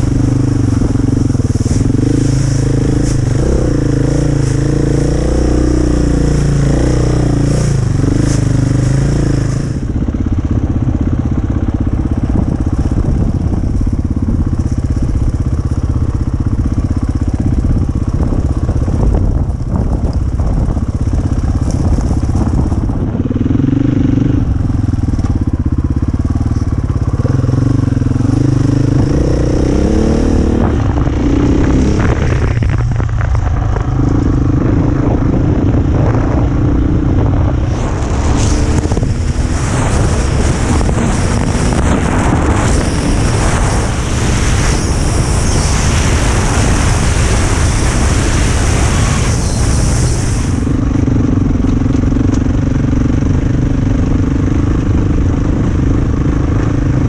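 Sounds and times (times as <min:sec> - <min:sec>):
dirt bike engine revving: 0:00.0 - 0:10.2, 0:23.3 - 0:53.8.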